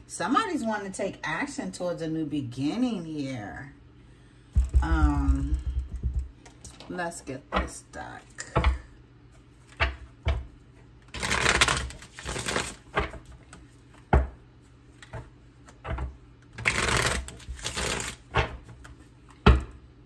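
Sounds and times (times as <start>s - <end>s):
cards shuffling: 11.1s - 13.7s, 15.0s - 19.0s.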